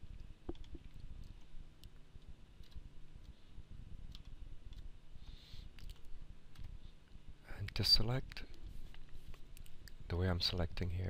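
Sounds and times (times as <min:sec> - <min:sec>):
low background hum: 0:00.0 - 0:11.0
mouse and keyboard clicking: 0:00.5 - 0:03.4, 0:04.1 - 0:06.8.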